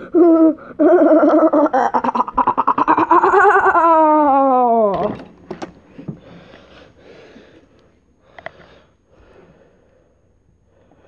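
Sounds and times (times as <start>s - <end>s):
person breathing heavily: 6.2s - 11.0s.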